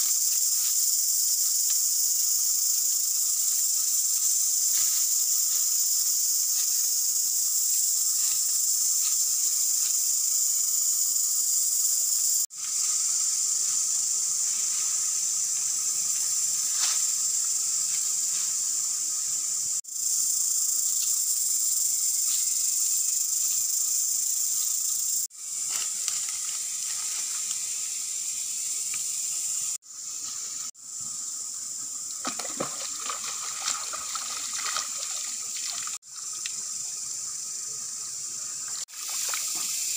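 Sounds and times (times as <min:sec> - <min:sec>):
insects droning: 0:00.0 - 0:39.9
hands splashing in stream water: 0:32.2 - 0:36.0, 0:38.9 - 0:39.7.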